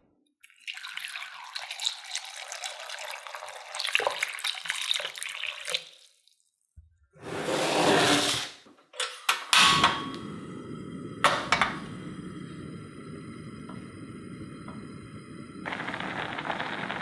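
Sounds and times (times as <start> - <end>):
gas burner burning: 9.5 - 17.0.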